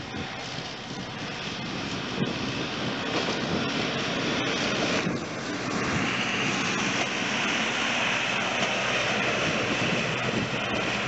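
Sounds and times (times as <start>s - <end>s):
truck rolling on rails: 0.0s - 11.0s
wind buffeting microphone: 0.0s - 11.0s.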